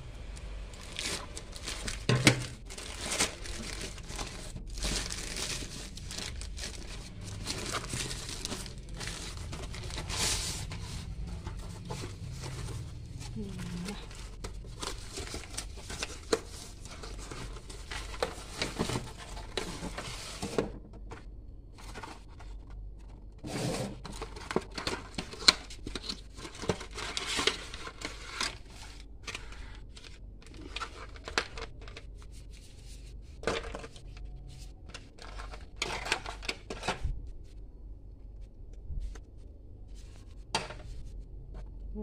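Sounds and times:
cardboard rustling and tearing: 0:00.8 - 0:22.6, 0:23.4 - 0:32.0.

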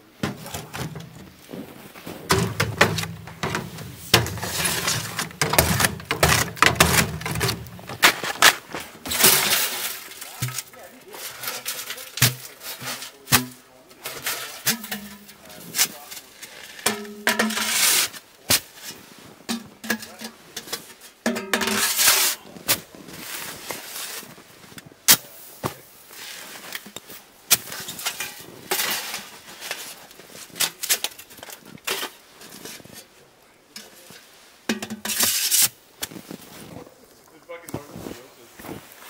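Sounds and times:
metal pipes clanking: 0:00.2 - 0:16.0, 0:16.8 - 0:17.8, 0:19.5 - 0:22.1
pipe scraping inside pipe: 0:02.3 - 0:07.6.

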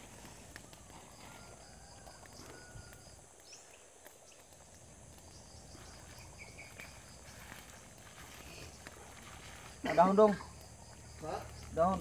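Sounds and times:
insect chirping: 0:00.0 - 0:12.0.

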